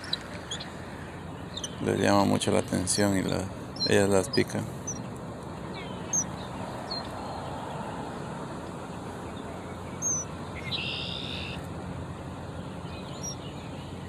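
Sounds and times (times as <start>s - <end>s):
high bird chirps: 0.0s - 5.1s, 5.7s - 7.1s, 10.0s - 11.6s, 12.9s - 14.0s.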